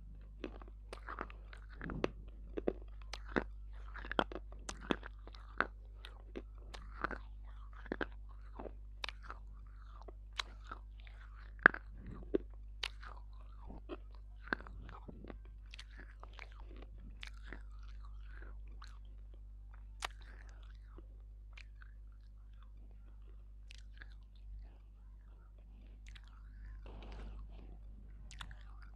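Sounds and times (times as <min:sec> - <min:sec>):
close chewing and crunching: 0:00.0 - 0:28.9
soft mouth sounds: 0:00.0 - 0:28.9.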